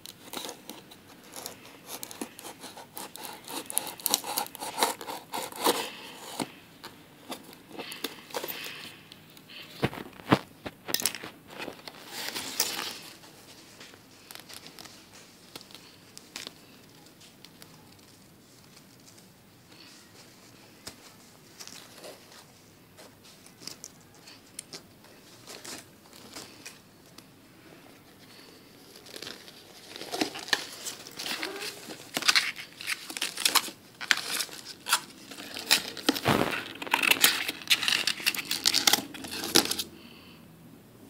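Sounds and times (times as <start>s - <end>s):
plastic bag rustling: 9.6s - 27.2s, 28.0s - 39.9s.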